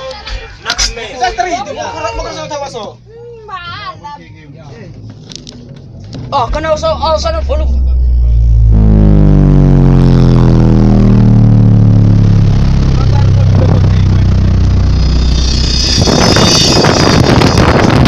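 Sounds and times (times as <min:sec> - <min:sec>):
car engine revs falling: 0:05.0 - 0:18.0.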